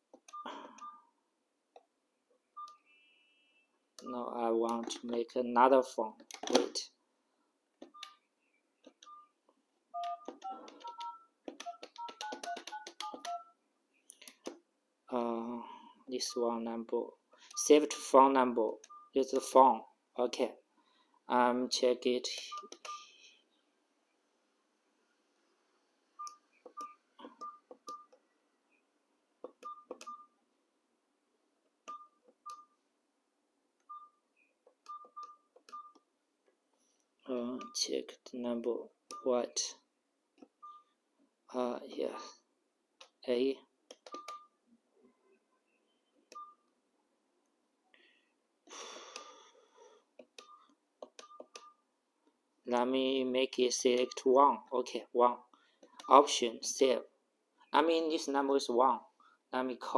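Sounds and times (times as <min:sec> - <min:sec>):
phone keypad beeps: 0:00.3 - 0:01.1, 0:02.6 - 0:03.4, 0:07.9 - 0:08.2, 0:09.0 - 0:09.4, 0:10.0 - 0:13.6, 0:22.5 - 0:23.2, 0:26.2 - 0:28.2, 0:29.6 - 0:30.4, 0:31.9 - 0:32.8, 0:33.9 - 0:34.2, 0:34.8 - 0:36.0, 0:40.6 - 0:41.0, 0:44.1 - 0:44.6, 0:46.3 - 0:46.6, 0:50.4 - 0:51.8
short beeps: 0:00.3 - 0:01.1.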